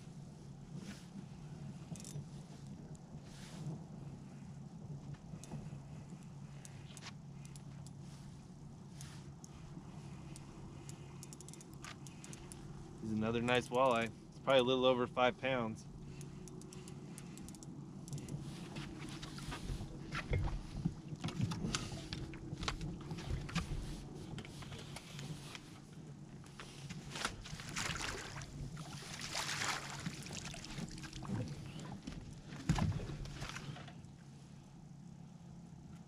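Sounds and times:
steady low hum: 0.0s - 36.0s
water splashing: 27.4s - 31.7s.

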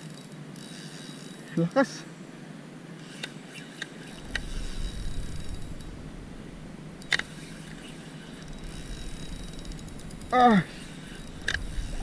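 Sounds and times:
fishing reel clicks: 0.0s - 1.5s, 3.0s - 6.0s, 7.0s - 12.0s
low rumble: 4.2s - 12.0s.

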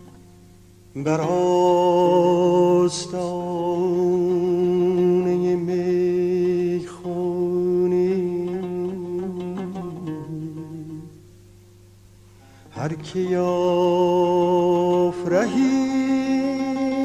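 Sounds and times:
plucked oud note: 0.0s - 11.3s, 14.1s - 17.0s
man singing long notes: 0.9s - 11.3s, 12.7s - 17.0s
singer breathing: 12.2s - 12.8s.

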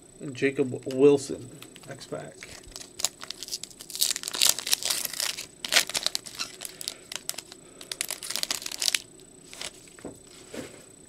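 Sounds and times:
foil wrapper tearing and crinkling: 1.8s - 9.9s.

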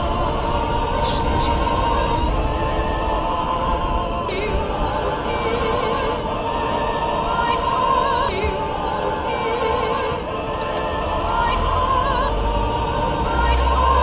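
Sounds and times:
operatic singing voice: 0.0s - 14.0s.

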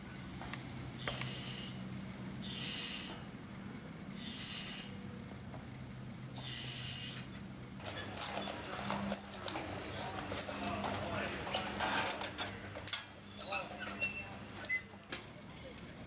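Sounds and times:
hooves clip-clopping: 7.8s - 15.9s
wheels and harness clattering: 7.8s - 16.0s.

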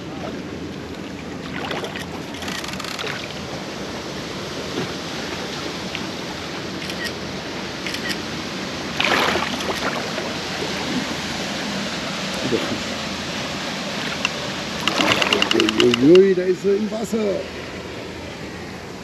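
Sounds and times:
water noise: 0.0s - 19.0s
wind: 0.0s - 19.0s
fish splashing at surface: 1.4s - 3.4s, 8.9s - 11.2s, 14.0s - 16.0s.

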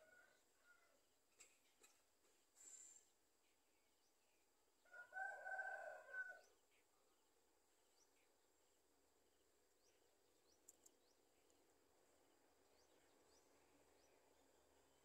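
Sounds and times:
small birds chirping: 1.3s - 5.0s, 6.3s - 15.0s
sharp clicks: 10.6s - 11.0s.

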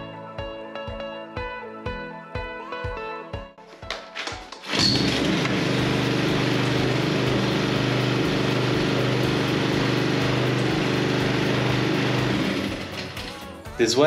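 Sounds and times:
lawn mower engine running: 4.6s - 13.4s.

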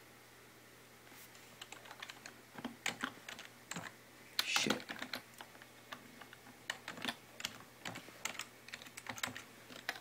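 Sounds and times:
keyboard keys clicking: 1.6s - 3.9s, 6.2s - 10.0s.

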